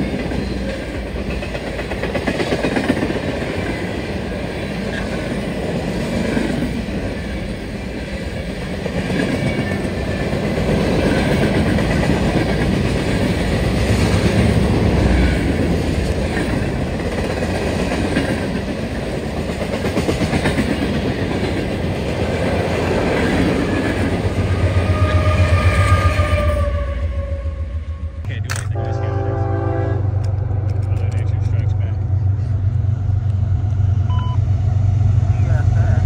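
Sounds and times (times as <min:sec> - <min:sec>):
freight train wheels clacking: 0:00.0 - 0:26.6
deep train rumble: 0:00.0 - 0:36.0.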